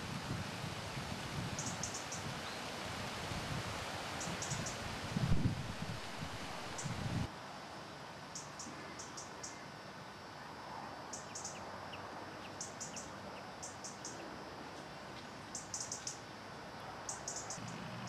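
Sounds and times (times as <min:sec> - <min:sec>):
steady background hiss: 0:00.0 - 0:18.0.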